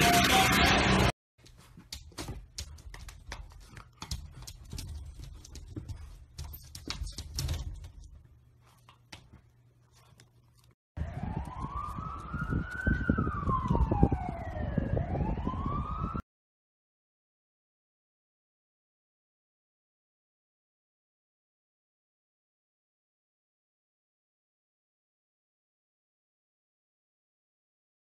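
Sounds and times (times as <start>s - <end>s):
siren wailing: 0.0s - 1.1s, 11.0s - 16.2s.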